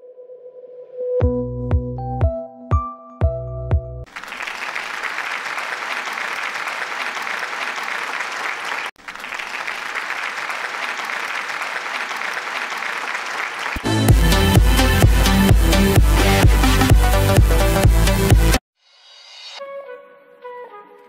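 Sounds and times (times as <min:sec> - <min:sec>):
crowd applause: 0:04.1 - 0:16.9.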